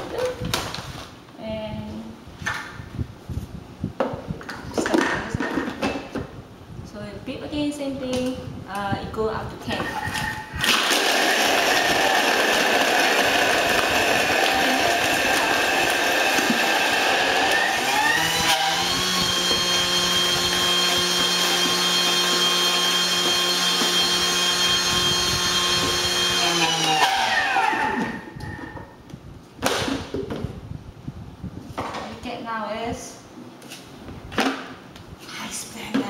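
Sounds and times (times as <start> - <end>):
blender motor whine: 10.6 - 28.4.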